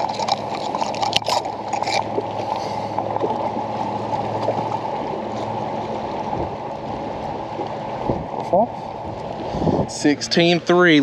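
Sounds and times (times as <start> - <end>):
wind and water noise: 0.0 - 11.0.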